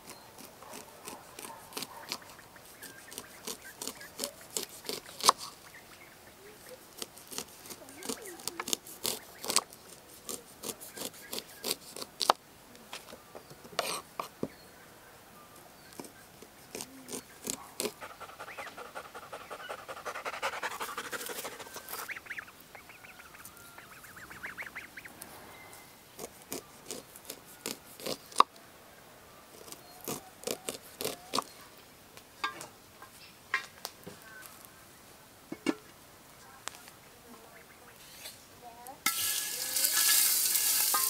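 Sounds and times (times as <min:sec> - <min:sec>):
waterfowl calling: 0:18.0 - 0:25.2.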